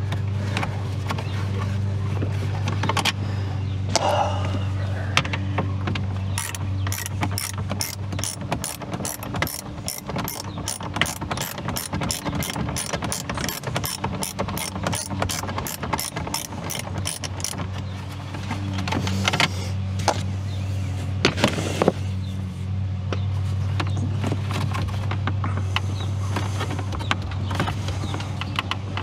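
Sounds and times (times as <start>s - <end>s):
ratchet wrench clicking: 6.4s - 17.6s.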